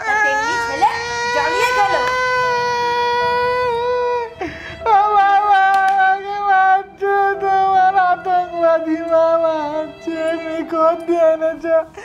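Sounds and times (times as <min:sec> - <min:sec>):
man wailing: 0:00.0 - 0:06.8.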